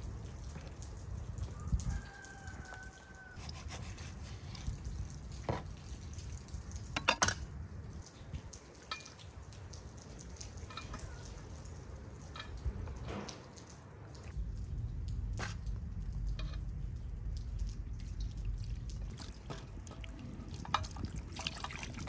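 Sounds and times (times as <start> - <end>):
wet squishes of raw chicken: 0.0 - 6.9, 17.5 - 22.0.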